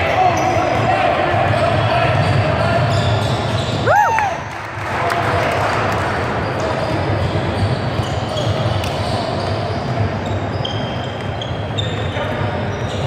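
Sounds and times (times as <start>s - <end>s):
sneaker squeaks: 0.0s - 0.9s, 1.6s - 3.9s, 6.5s - 13.0s.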